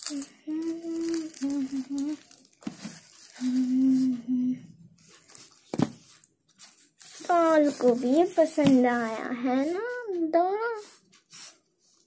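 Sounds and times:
girl humming: 0:00.0 - 0:02.3, 0:03.4 - 0:04.7
cloth dress rustling: 0:04.9 - 0:10.0.

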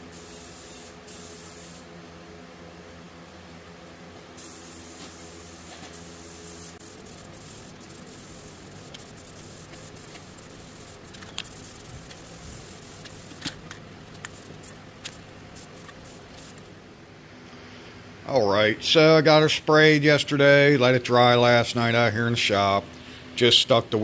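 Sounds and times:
spray can hissing: 0:00.1 - 0:01.9, 0:04.4 - 0:16.7
sharp clicks: 0:11.1 - 0:12.3.

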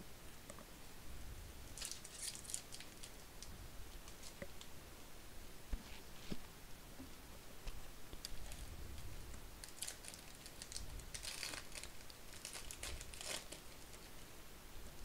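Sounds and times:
plastic wrapper crinkling: 0:01.8 - 0:04.4, 0:09.6 - 0:14.2.

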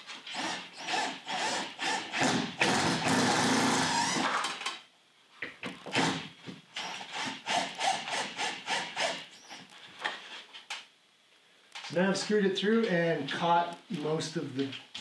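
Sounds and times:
cordless drill driving a screw: 0:00.3 - 0:04.7, 0:06.8 - 0:09.2.

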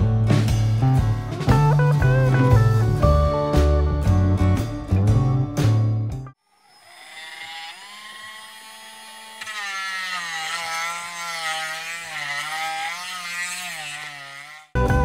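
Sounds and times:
rotary tool high-pitched whine: 0:06.4 - 0:14.8.

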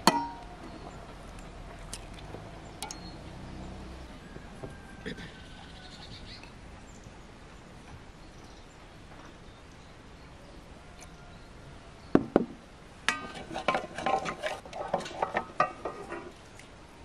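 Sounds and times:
sharp knocks: 0:12.2 - 0:12.6.

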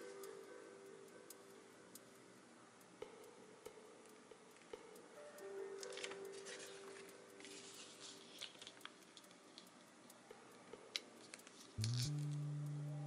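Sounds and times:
paper pages turning: 0:05.8 - 0:09.3
paper ticks and taps: 0:05.8 - 0:12.0
loud low music note: 0:11.8 - 0:13.0.

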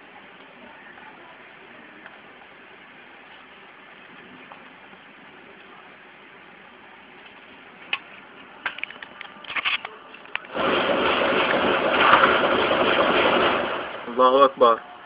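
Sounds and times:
machine-gun fire: 0:10.5 - 0:14.3
loud steady rushing noise: 0:10.5 - 0:15.0.

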